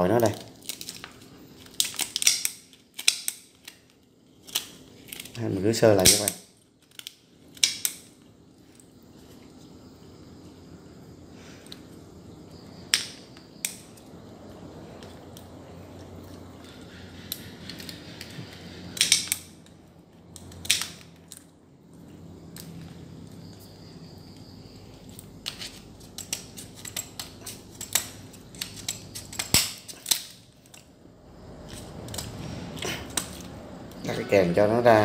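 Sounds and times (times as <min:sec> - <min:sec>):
scissors cutting crab shell: 0:00.6 - 0:08.0, 0:25.4 - 0:30.9.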